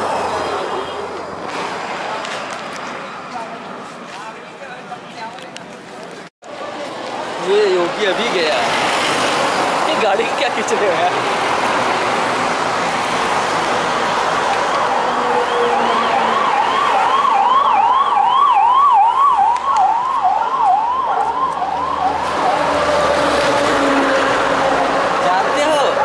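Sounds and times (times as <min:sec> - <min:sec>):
passing cars: 0:00.0 - 0:26.0
ambulance siren yelping: 0:14.4 - 0:23.2.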